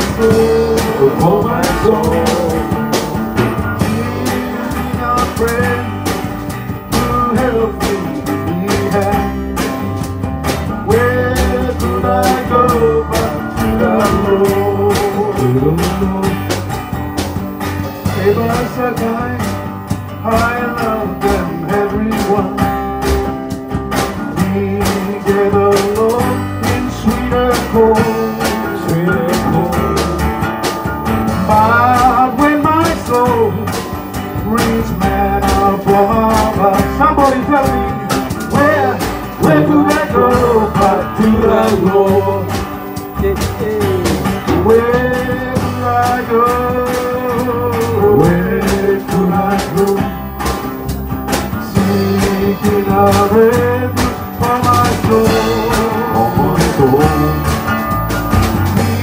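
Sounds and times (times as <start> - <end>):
person singing slow melody: 0.0 - 6.0, 51.7 - 57.7
acoustic guitar strumming: 0.0 - 59.0
second guitar: 0.0 - 59.0.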